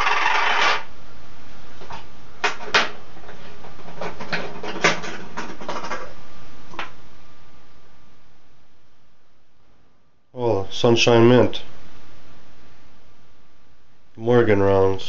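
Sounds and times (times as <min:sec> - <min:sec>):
coins clinking on wooden desk: 0:00.0 - 0:00.8.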